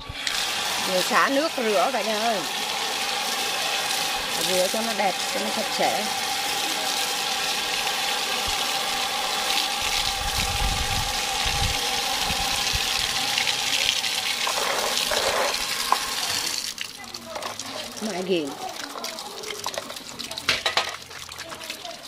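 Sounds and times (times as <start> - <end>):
water pouring into basin: 0.0 - 22.0
hands rubbing and splashing: 14.4 - 22.0.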